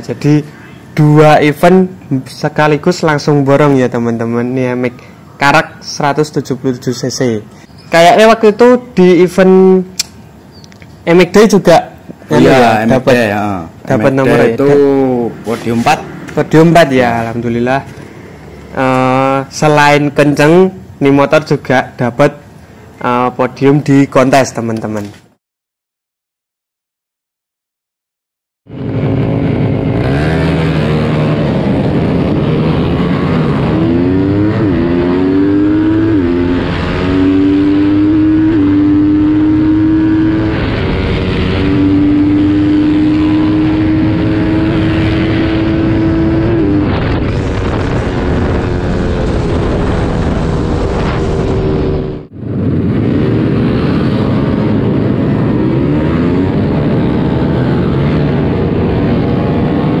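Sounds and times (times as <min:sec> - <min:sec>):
motorcycle engine revving: 0:28.7 - 1:00.0.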